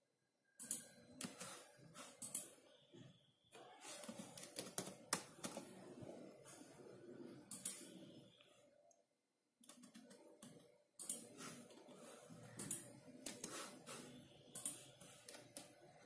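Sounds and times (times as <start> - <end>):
keyboard typing: 0.6 - 2.6, 3.8 - 6.2, 7.5 - 8.0, 9.6 - 16.0.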